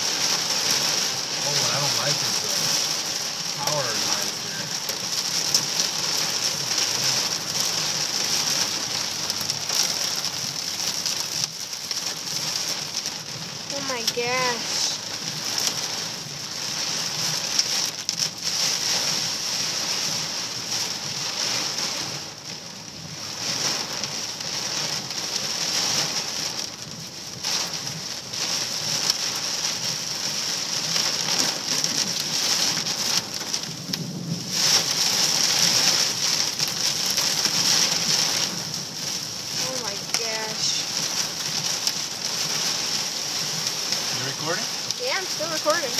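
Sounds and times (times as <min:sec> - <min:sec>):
hail and rain drumming on vehicle roof: 0:00.0 - 0:45.9.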